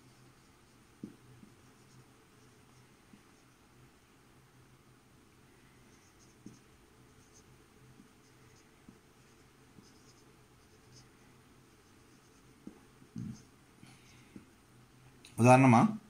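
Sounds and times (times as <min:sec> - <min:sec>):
marker scratching on whiteboard: 0:00.0 - 0:03.6, 0:05.9 - 0:13.5.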